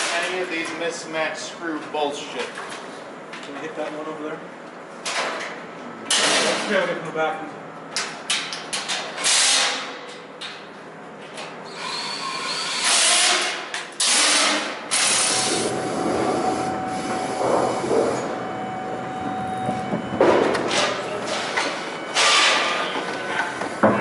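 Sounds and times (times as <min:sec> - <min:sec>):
thin hum: 0:15.4 - 0:21.2.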